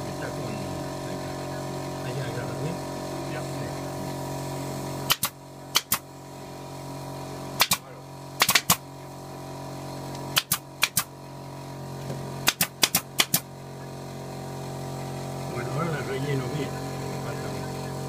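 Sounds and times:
steady low hum: 0.0 - 18.0
nail gun firing into wood: 5.0 - 6.1, 7.6 - 8.9, 10.3 - 11.1, 12.4 - 13.5.

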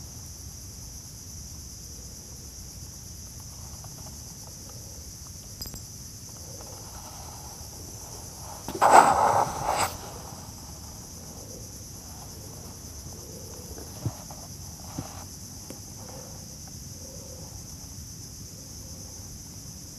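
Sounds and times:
high-pitched insect chorus: 0.0 - 19.9
camera rubbing against clothing: 6.6 - 10.6, 13.8 - 15.3.

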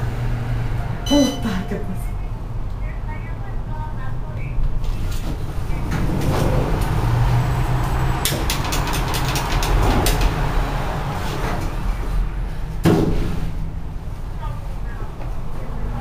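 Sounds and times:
elevator low rumble: 0.0 - 16.0
rapid clicks: 8.2 - 10.3.

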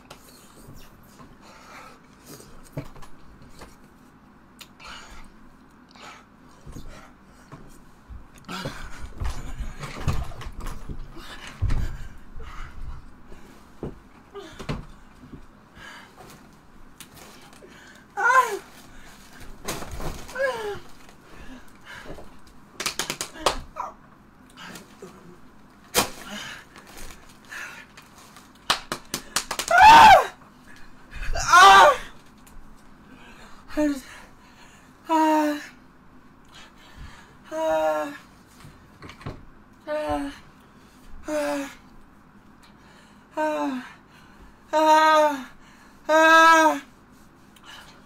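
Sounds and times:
man screaming: 29.7 - 30.4, 31.4 - 32.1.

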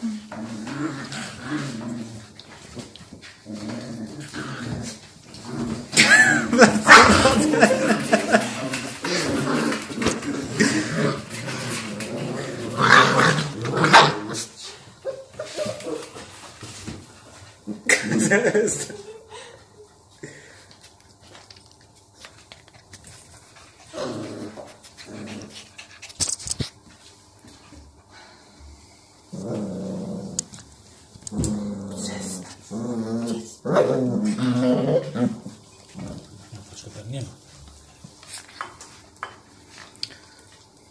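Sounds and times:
dog growling in play: 0.0 - 14.7, 23.8 - 26.0, 29.3 - 36.7
plastic pipe rolling on tile floor: 0.2 - 14.3.

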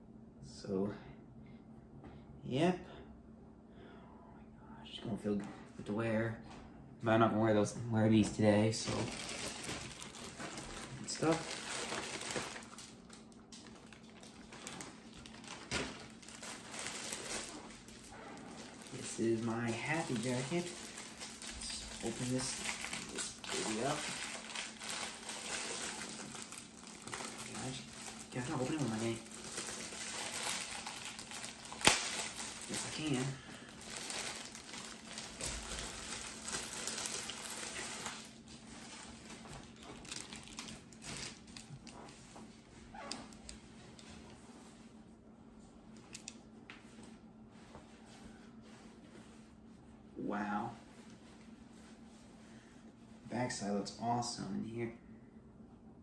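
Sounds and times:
plastic packaging crinkling: 8.8 - 44.1.

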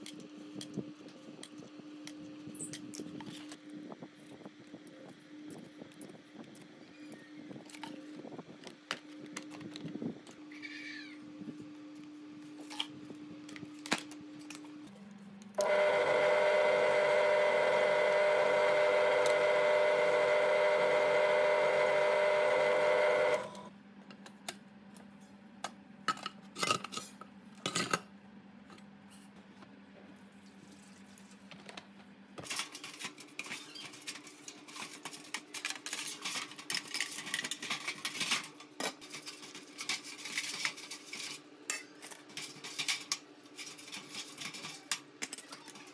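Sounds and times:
small electric motor running: 15.6 - 23.7.

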